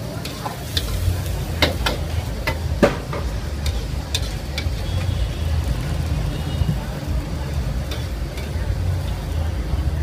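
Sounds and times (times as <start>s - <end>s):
food sizzling: 0.0s - 10.0s
metal spatula clanking against wok: 0.2s - 5.0s, 7.8s - 9.2s.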